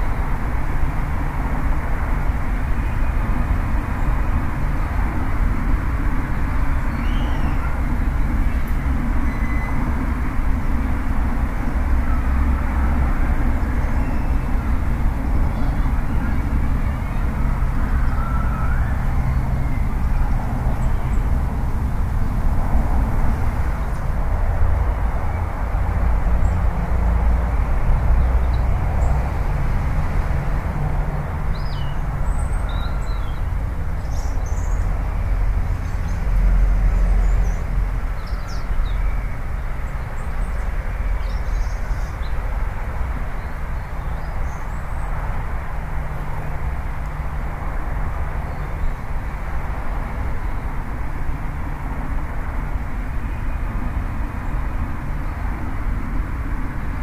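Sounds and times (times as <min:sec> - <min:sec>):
outdoor rumble and hiss: 0:00.0 - 0:57.0
faint bird chirps: 0:06.9 - 0:07.8, 0:08.5 - 0:09.8.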